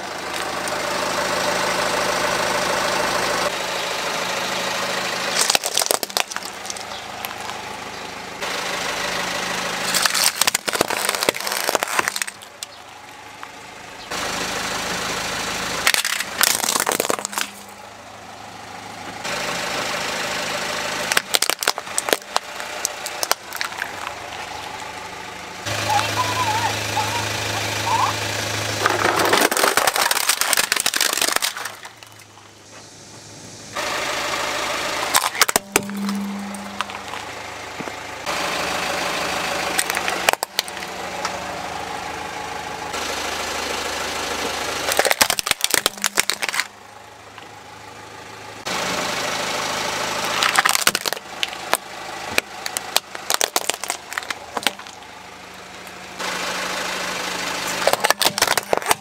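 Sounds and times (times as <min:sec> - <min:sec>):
plastic toys cracking under tyre: 0:05.3 - 0:07.6, 0:09.8 - 0:12.9, 0:15.8 - 0:17.7, 0:21.0 - 0:24.4, 0:28.8 - 0:32.3, 0:35.1 - 0:36.2, 0:39.7 - 0:40.9, 0:44.8 - 0:46.7, 0:50.2 - 0:55.0, 0:57.7 - 0:59.0.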